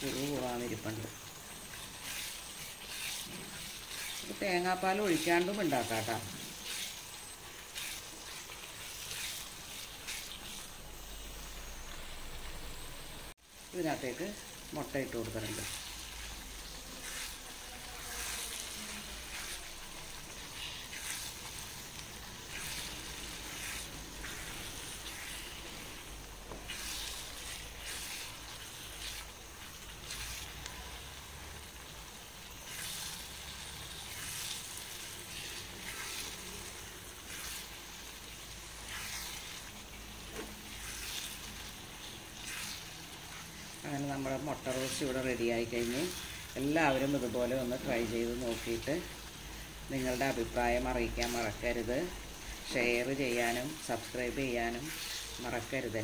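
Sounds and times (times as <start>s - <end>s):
spatula scraping pan: 0.0s - 10.6s, 15.4s - 31.1s, 32.5s - 49.3s
masala sizzling: 0.0s - 56.0s.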